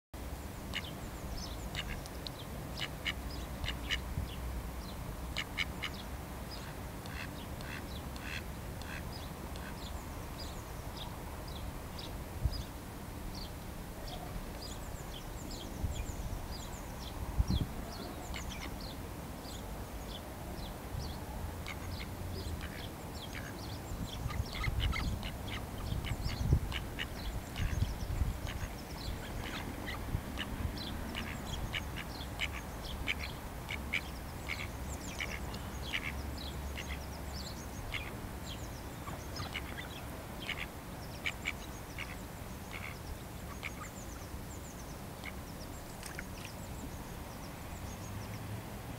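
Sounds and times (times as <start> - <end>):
ducks calling: 6.6 - 9.0, 31.1 - 36.2.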